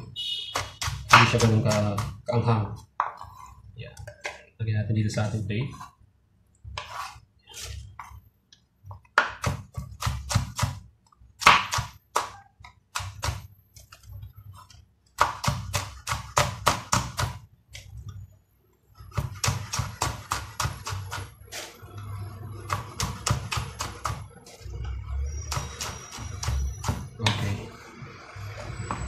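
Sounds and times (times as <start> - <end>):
knife chopping on wooden board: 0.5 - 2.2, 9.0 - 10.8, 11.4 - 13.5, 15.2 - 17.4, 19.1 - 21.3.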